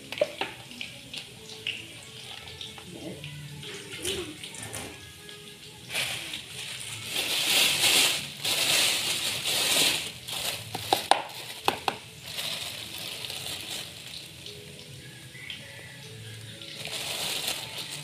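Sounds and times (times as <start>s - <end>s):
plastic bag crinkling: 5.9s - 14.6s, 16.4s - 18.0s.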